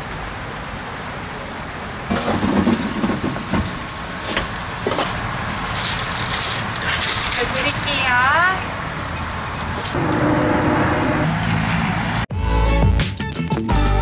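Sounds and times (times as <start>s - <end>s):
outdoor background noise: 0.0s - 12.3s
vehicle engine: 0.0s - 12.4s.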